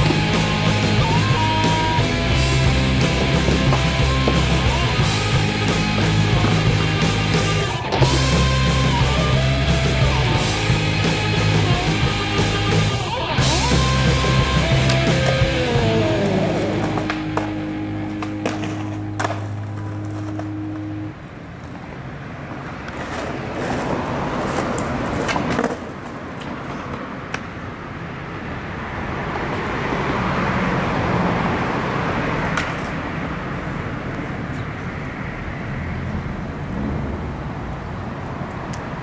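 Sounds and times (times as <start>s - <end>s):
skateboard clacks: 0.0s - 21.0s, 21.6s - 27.6s
music: 0.0s - 21.1s
skateboard wheels rolling on concrete: 0.0s - 39.0s.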